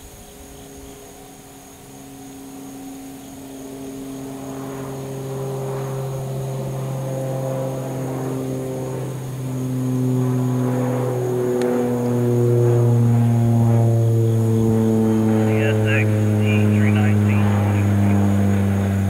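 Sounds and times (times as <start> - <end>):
diesel locomotive engine drone: 0.0 - 19.0
freight train passing: 14.1 - 19.0.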